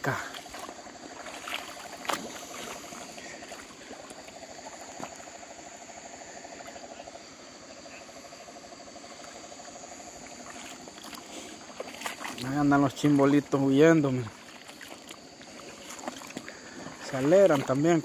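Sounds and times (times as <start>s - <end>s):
frog pulsed trills: 0.0s - 18.0s
high-pitched insect drone: 0.0s - 18.0s.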